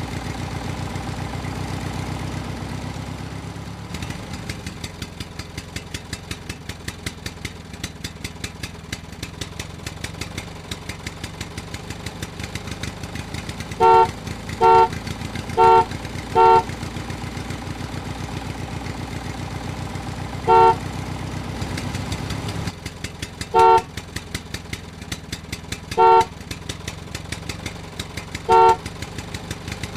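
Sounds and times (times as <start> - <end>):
tractor engine chugging: 3.8 - 29.9
vehicle horn short beeps: 13.8 - 16.8, 20.4 - 20.9, 23.6 - 23.9, 26.0 - 26.3, 28.5 - 28.8.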